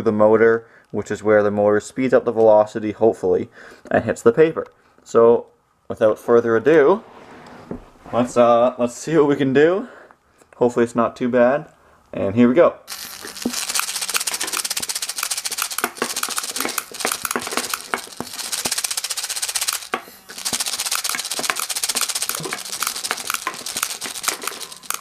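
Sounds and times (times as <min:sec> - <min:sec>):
bb gun firing rattling clicks: 0:12.9 - 0:25.0
small motor running: 0:12.9 - 0:25.0.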